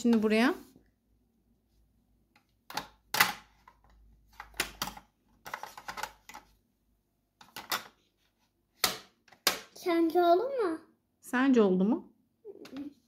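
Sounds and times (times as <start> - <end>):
plastic puzzle pieces clicking: 2.4 - 6.5, 7.4 - 8.0.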